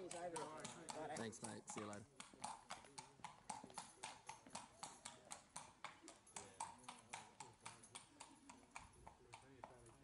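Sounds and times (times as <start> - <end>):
horse hooves on concrete: 0.0 - 10.0.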